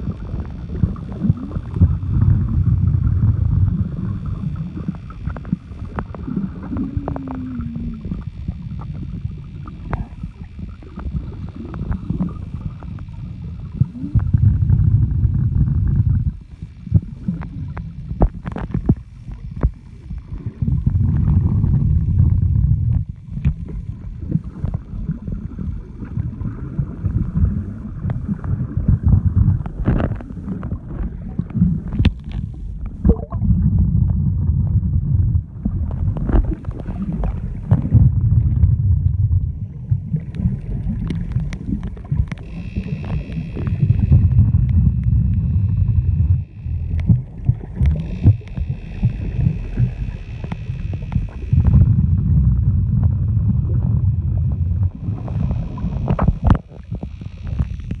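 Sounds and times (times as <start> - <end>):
low rumble of moving water: 0.0 - 58.0
underwater clicks and knocks: 9.6 - 10.2, 10.8 - 24.9, 27.0 - 34.9, 35.6 - 58.0.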